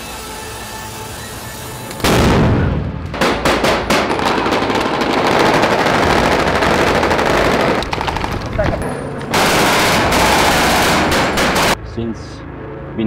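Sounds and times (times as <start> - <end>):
continuous dense gunfire: 2.0 - 8.6, 9.3 - 11.8
rifle shots: 9.3 - 11.8.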